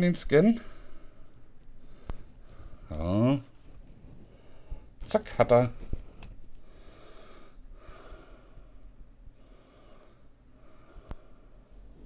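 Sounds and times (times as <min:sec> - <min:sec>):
man breathing through nose: 0:00.6 - 0:02.9, 0:04.2 - 0:05.0, 0:06.0 - 0:12.0.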